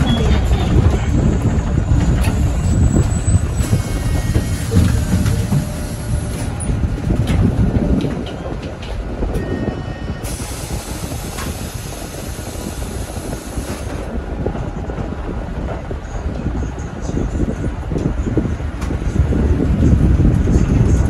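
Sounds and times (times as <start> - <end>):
bus engine running: 0.0 - 21.0
road noise: 0.0 - 21.0.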